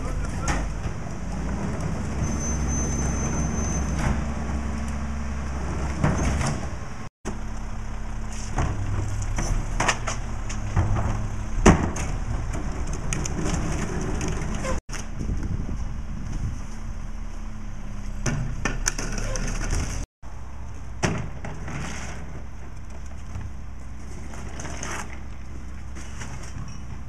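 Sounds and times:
trash carts knocking and banging: 0.0s - 7.5s, 8.2s - 16.8s, 18.0s - 20.1s, 20.9s - 27.0s
garbage truck diesel engine running: 0.0s - 18.7s.

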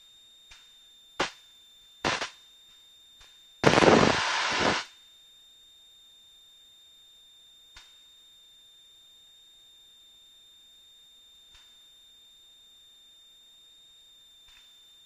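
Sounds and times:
faint high-pitched whine: 0.0s - 15.0s
loud static crackle: 2.0s - 2.3s, 3.6s - 4.9s
sharp radio clicks: 2.1s - 2.3s, 3.6s - 4.8s.

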